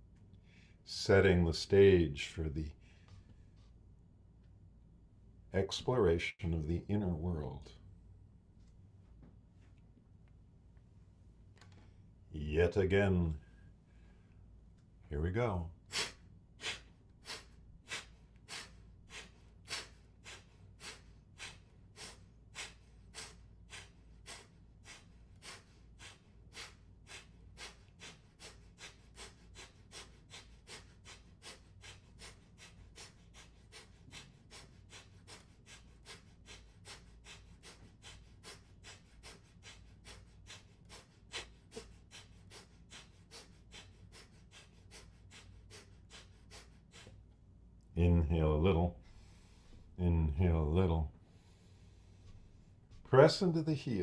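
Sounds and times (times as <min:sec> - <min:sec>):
man exhaling forcefully through nose: 0:15.9 - 0:47.1.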